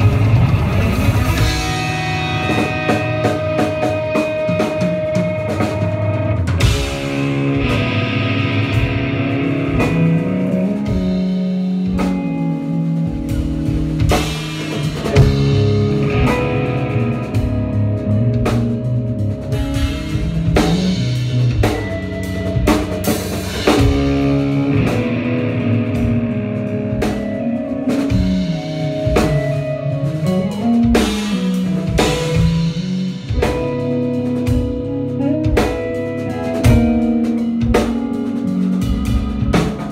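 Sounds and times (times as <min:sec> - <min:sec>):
drum hits: 0:00.0 - 0:12.4, 0:19.5 - 0:34.9
guitar lines: 0:00.0 - 0:39.9
live rock band playing: 0:00.0 - 0:39.9.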